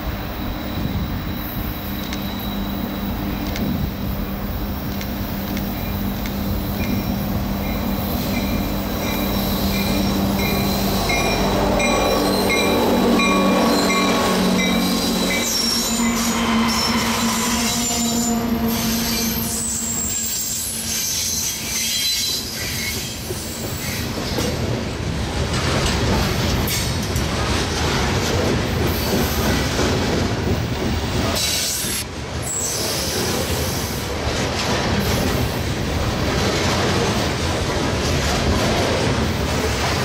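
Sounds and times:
high wheel squeal: 0.4 - 3.3, 5.8 - 24.0
train wheels clattering on rail: 20.0 - 40.0.

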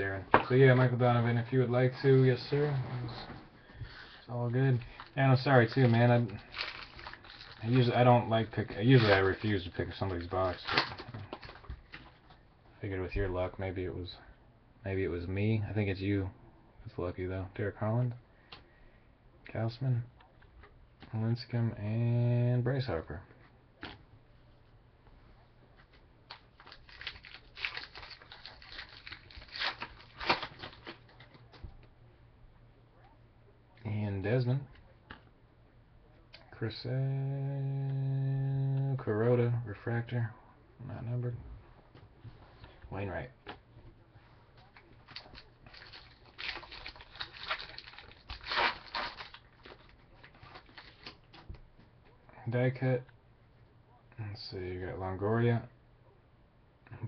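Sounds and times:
foil wrapper crinkling: 4.8 - 12.1, 26.3 - 31.6, 44.7 - 51.4
foil ripping: 4.9 - 8.0, 8.6 - 11.6, 26.6 - 31.2, 45.0 - 51.3.

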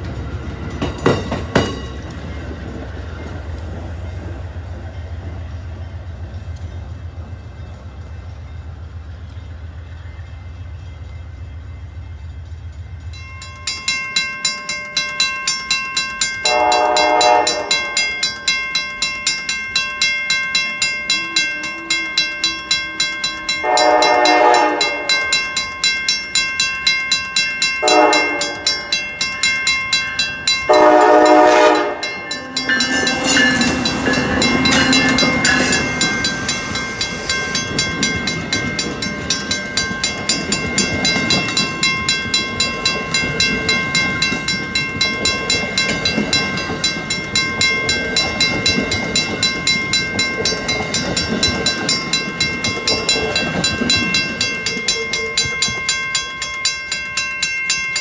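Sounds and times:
crossing warning bells ringing: 0.0 - 58.0
train rumbling and clattering over rails: 0.0 - 58.0
locomotive horn: 16.4 - 18.0, 21.1 - 25.2, 27.8 - 28.7, 30.7 - 33.9.

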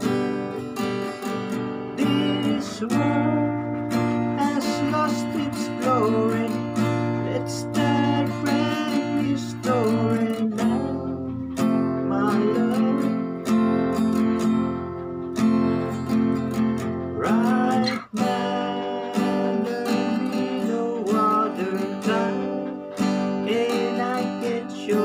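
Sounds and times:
acoustic guitar strumming: 0.0 - 25.0.

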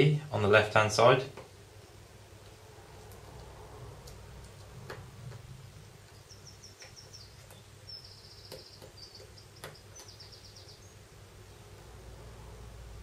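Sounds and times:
low steady hum: 0.0 - 13.0
faint rapid high chirps: 6.0 - 11.0.

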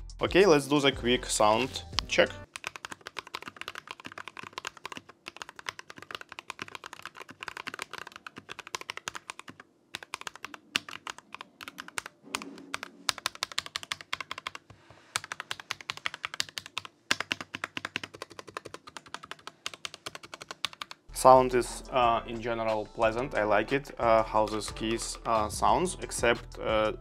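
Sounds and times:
mechanical keyboard typing: 2.4 - 21.0.

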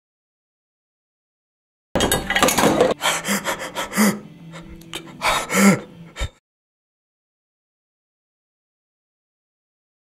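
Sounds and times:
man gasping and sobbing: 2.9 - 6.4.

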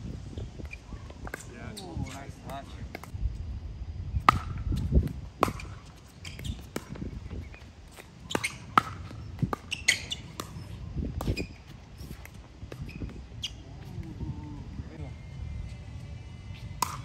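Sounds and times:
short high squeaks: 9.6 - 13.6.

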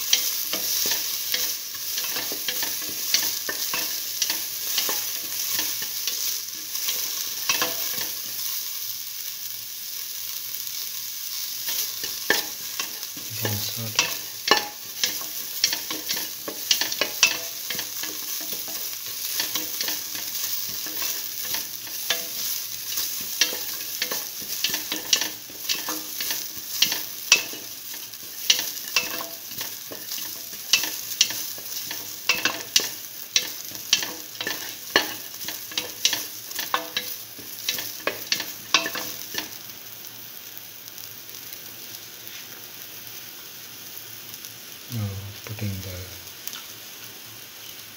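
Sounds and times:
onion sizzling in oil: 0.0 - 47.9
stirring scrapes against metal pan: 11.7 - 39.5.

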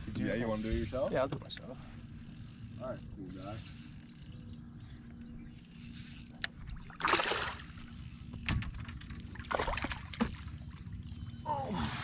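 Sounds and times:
water sloshing against boat hull: 6.5 - 10.8
noisy splash: 7.0 - 7.7.

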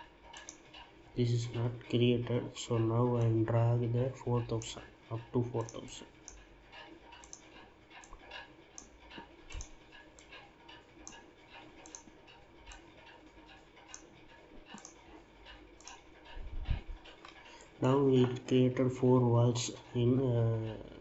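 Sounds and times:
faint computer mouse clicks: 0.3 - 0.9, 5.6 - 14.1, 14.7 - 15.1.

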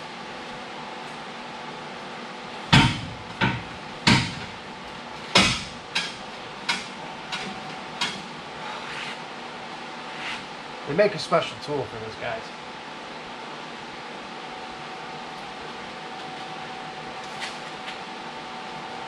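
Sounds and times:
metallic knocks on exhaust pipe: 2.7 - 4.5, 5.4 - 7.4.

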